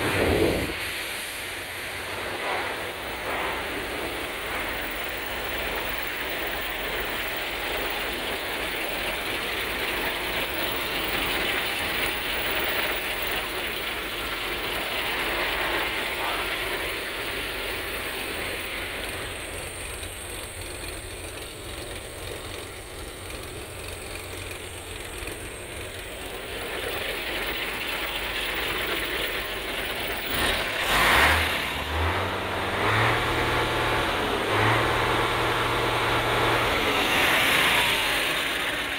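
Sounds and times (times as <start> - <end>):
rushing wind: 0.0 - 9.0
diesel engine starting and idling: 0.0 - 38.9.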